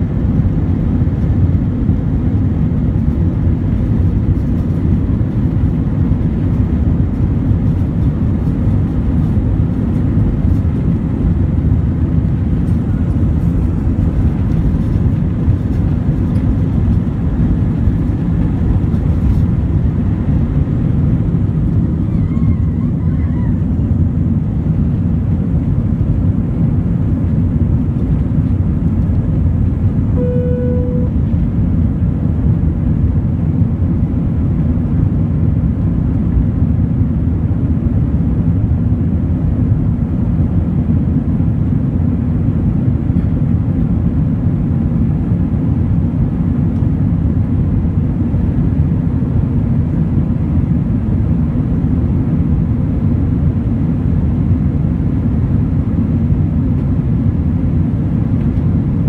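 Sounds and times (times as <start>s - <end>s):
jet engines from inside cabin: 0.0s - 59.0s
brief single tone: 30.2s - 31.3s.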